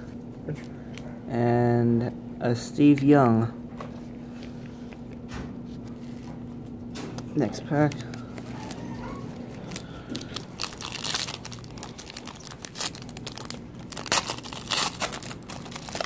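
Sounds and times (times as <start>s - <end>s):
wrapper tearing and crinkling: 9.7s - 16.0s.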